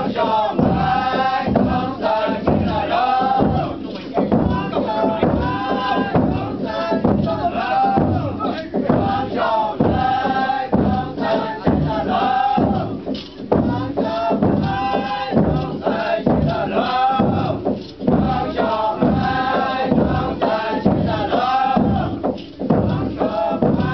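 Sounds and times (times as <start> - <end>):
group chanting: 0.0 - 23.9.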